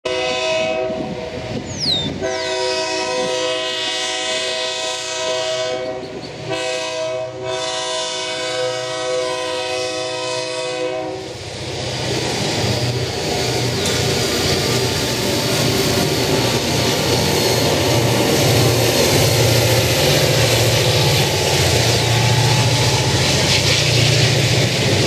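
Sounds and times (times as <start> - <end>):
locomotive air horn blasts: 0.0 - 11.4
locomotive engine rumble: 0.1 - 25.0.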